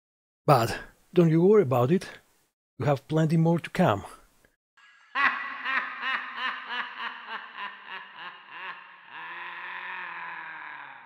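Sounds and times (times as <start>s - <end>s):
high-pitched laugh: 4.8s - 11.0s.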